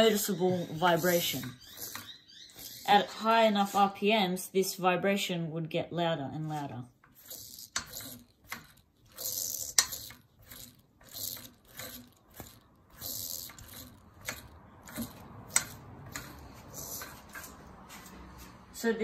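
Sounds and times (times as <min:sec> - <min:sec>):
bearing spinning whirr: 0:00.0 - 0:03.4, 0:07.0 - 0:18.7.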